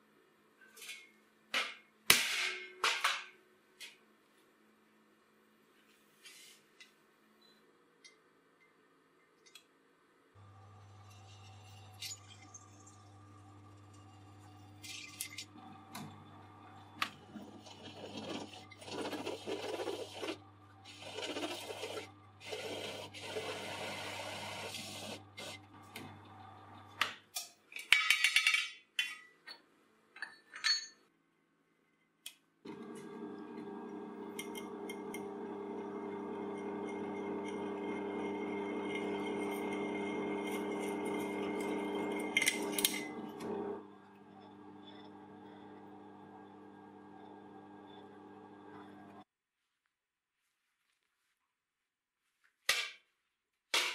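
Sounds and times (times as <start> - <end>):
drill bit scraping steel: 10.8 - 15.7, 36.4 - 43.4, 44.1 - 46.0
drill press motor running: 15.4 - 27.0, 32.7 - 49.2.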